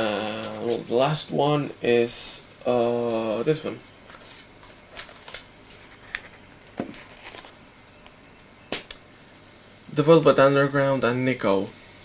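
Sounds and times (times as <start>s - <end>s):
steady high hiss: 0.0s - 12.0s.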